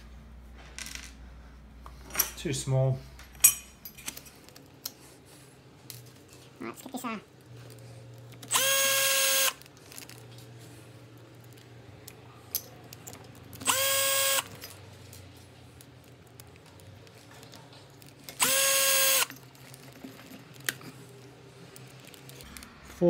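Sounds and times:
faint clicks of handling parts: 0:00.5 - 0:02.5, 0:03.1 - 0:06.6, 0:09.6 - 0:13.8, 0:19.2 - 0:23.0
cordless drill whining: 0:08.5 - 0:09.6, 0:13.6 - 0:14.5, 0:18.4 - 0:19.3.

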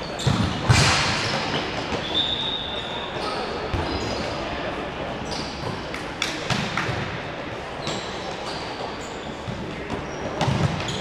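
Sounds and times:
shoes squeaking on court: 0:00.0 - 0:04.4, 0:07.8 - 0:11.0
sports hall din: 0:00.0 - 0:11.0.

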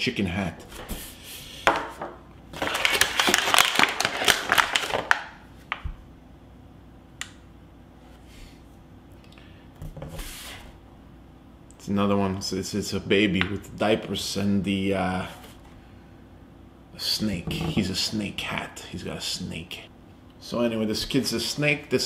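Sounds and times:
plastic packaging crinkling: 0:02.5 - 0:05.8.

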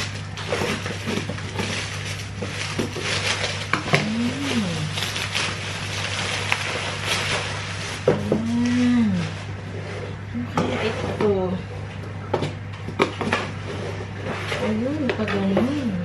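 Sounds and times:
scissors cutting bubble wrap: 0:00.0 - 0:09.4
bubble wrap crinkling and crackling: 0:00.0 - 0:12.0.

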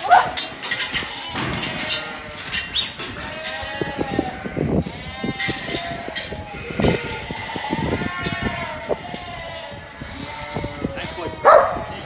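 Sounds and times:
knocks and clatter: 0:00.4 - 0:03.8
sheep bleating: 0:03.1 - 0:12.0.

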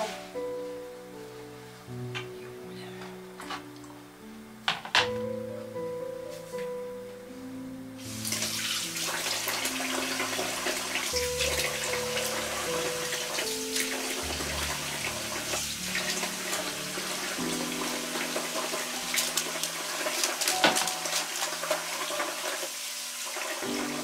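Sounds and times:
soft background music: 0:00.0 - 0:24.0
water running from tap: 0:08.0 - 0:24.0.

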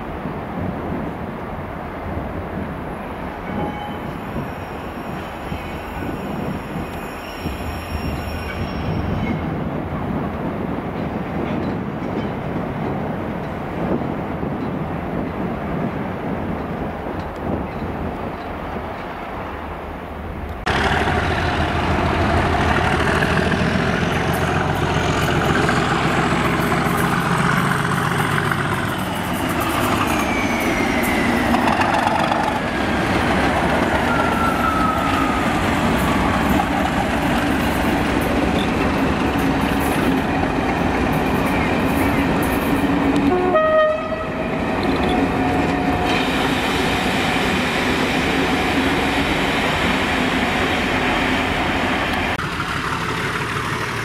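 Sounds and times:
diesel locomotive engine: 0:00.0 - 0:54.0
wheels clattering on rails: 0:10.9 - 0:15.4, 0:20.5 - 0:43.4, 0:52.1 - 0:54.0.

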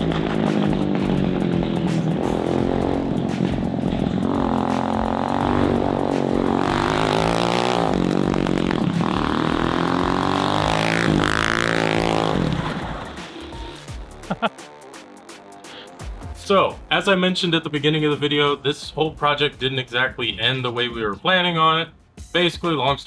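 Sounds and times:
kart engine revving: 0:00.0 - 0:14.0.

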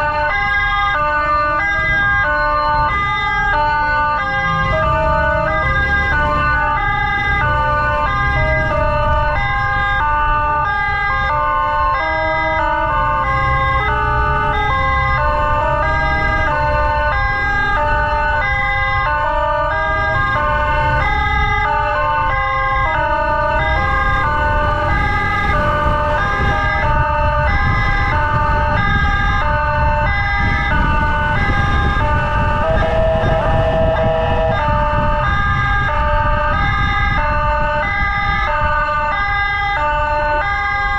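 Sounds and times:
electronic emergency siren: 0:00.0 - 0:40.9
engine and wind rumble: 0:00.0 - 0:40.9.

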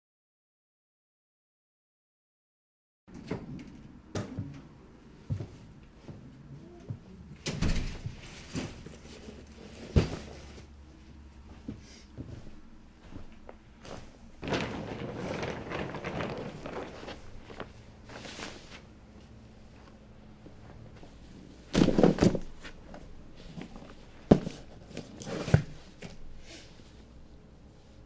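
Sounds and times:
scuffle: 0:08.0 - 0:18.9
rustling: 0:12.2 - 0:26.3
objects knocking and thumping: 0:21.7 - 0:23.0.

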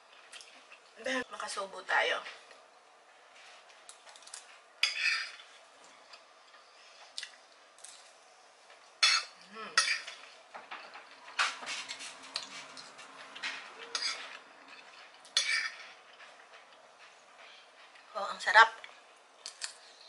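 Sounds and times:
metal spoon scraping a plate: 0:04.8 - 0:05.5, 0:13.8 - 0:14.4, 0:15.4 - 0:16.0.

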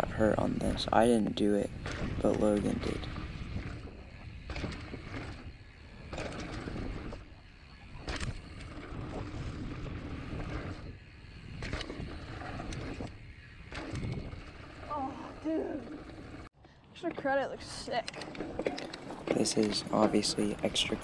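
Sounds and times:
wind rumbling on microphone: 0:00.0 - 0:16.5
bike rattling over bumps: 0:00.0 - 0:21.0
tyres rolling on dirt: 0:00.0 - 0:21.0.

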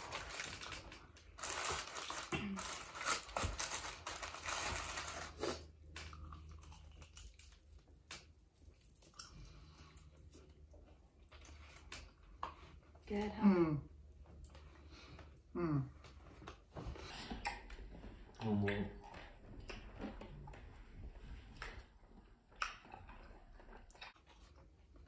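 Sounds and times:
person chewing food: 0:05.1 - 0:13.0, 0:14.1 - 0:25.0
soft clicks and mouth sounds: 0:17.2 - 0:20.9, 0:21.5 - 0:25.0.

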